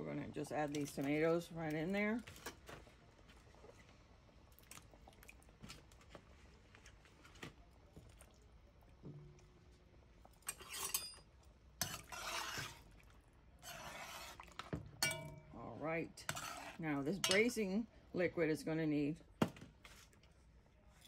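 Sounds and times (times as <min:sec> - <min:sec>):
spoon stirring liquid: 0:08.9 - 0:15.5, 0:16.1 - 0:17.7
metal spoon clinking on pot: 0:10.5 - 0:11.2, 0:15.0 - 0:15.5, 0:17.2 - 0:17.6.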